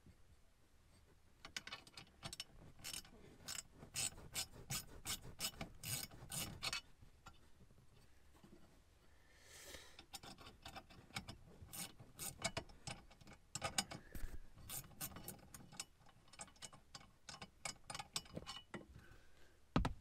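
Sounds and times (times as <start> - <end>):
hand ratchet clicking: 1.6 - 6.8, 10.0 - 14.0.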